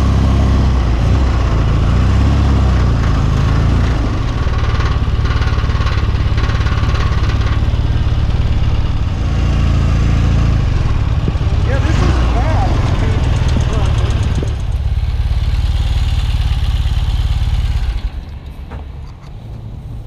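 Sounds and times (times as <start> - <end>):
motorcycle engine running: 0.0 - 20.0
wind rush on microphone: 11.0 - 14.8.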